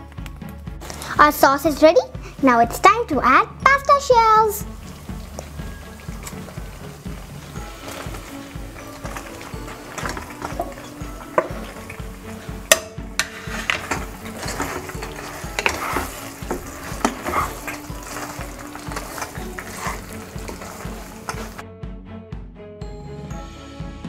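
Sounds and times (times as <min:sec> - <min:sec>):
background music with steady beat: 0:00.0 - 0:24.0
sauce sizzling: 0:03.4 - 0:21.6
wooden spatula scraping pan: 0:04.8 - 0:21.6
spatula knocking against pan: 0:12.6 - 0:18.3.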